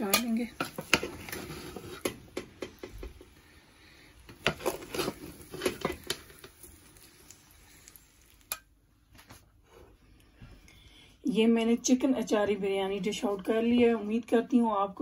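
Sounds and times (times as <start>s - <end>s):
utensil scraping cooking pot: 0.0s - 3.4s, 4.2s - 6.7s.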